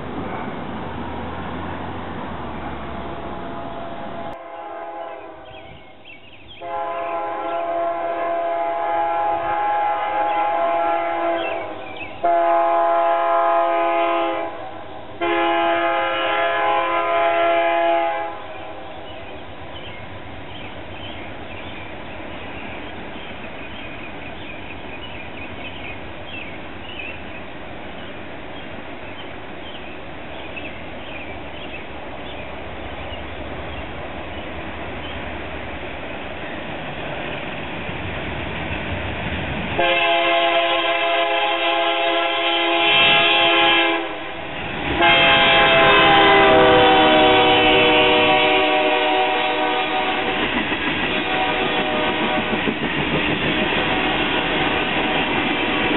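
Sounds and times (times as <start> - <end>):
train rumble: 0.0 - 55.9
locomotive air horn blasts: 3.4 - 5.5, 6.6 - 18.6, 39.8 - 50.4, 51.2 - 52.5, 53.8 - 55.9.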